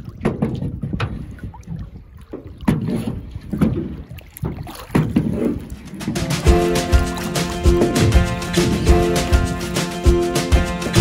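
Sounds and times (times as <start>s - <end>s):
wind on microphone: 0.0s - 6.1s
paddle splashing in water: 0.0s - 11.0s.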